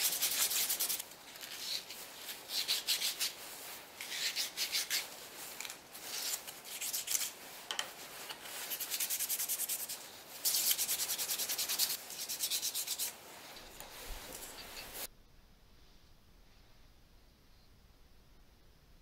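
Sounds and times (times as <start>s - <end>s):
sandpaper rubbing on wood: 0.0s - 7.4s, 8.5s - 13.2s.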